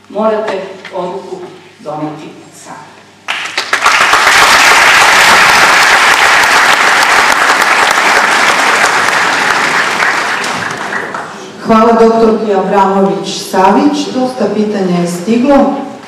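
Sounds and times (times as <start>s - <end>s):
audience applauding: 3.3s - 11.4s.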